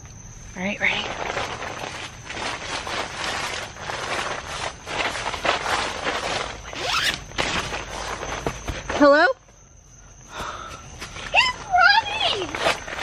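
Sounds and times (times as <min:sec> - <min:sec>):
nylon fabric rustling: 0:00.8 - 0:09.2, 0:11.8 - 0:13.0
tent zipper rasping open: 0:01.2 - 0:08.2.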